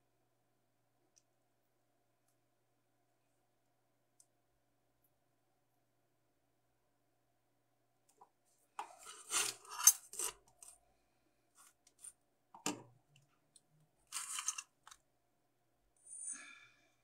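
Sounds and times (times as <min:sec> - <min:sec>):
paper sheet rustling: 0:14.1 - 0:14.6.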